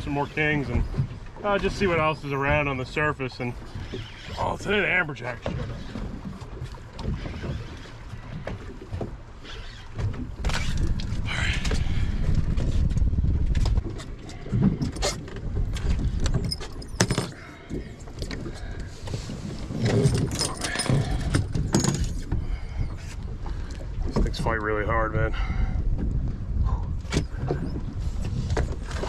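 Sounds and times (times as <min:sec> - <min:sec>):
wind rumbling on microphone: 0:00.0 - 0:29.0
knocks and rattles on deck: 0:19.8 - 0:22.5.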